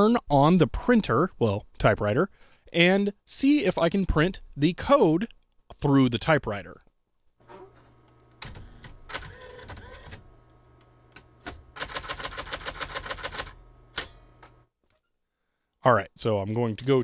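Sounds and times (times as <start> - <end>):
typewriter hum and whirring: 7.7 - 14.6
typewriter ticking: 8.4 - 10.2, 11.4 - 14.1.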